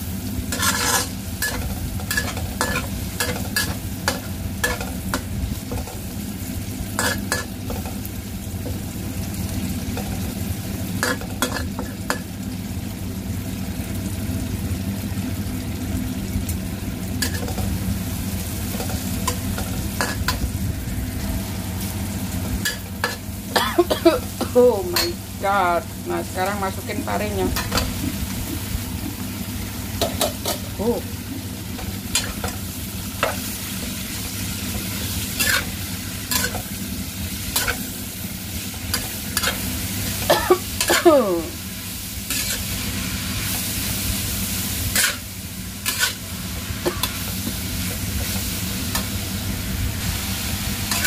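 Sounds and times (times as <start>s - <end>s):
food sizzling in oil: 0.0s - 51.0s
metal spatula scraping and clinking: 0.5s - 5.2s, 35.4s - 35.7s, 44.9s - 45.2s, 45.8s - 46.2s.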